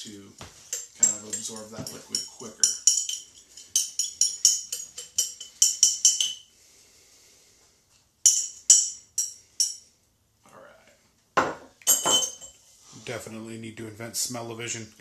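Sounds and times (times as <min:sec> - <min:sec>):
glass jar clinking: 0:00.6 - 0:06.5, 0:08.3 - 0:09.8, 0:11.4 - 0:12.6.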